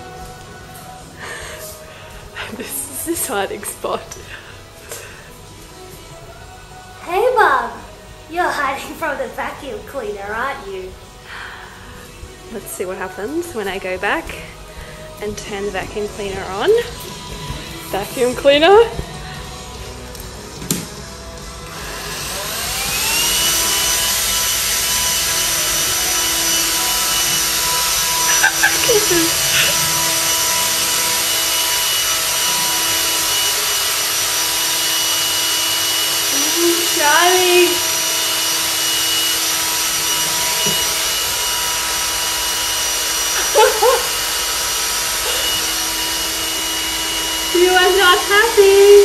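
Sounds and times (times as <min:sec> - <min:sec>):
robot vacuum motor whine: 0:21.7 - 0:49.0.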